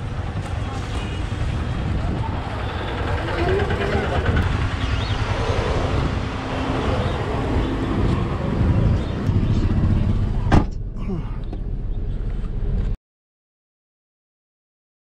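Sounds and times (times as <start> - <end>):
people chattering: 0.0 - 11.4
road traffic: 0.0 - 13.0.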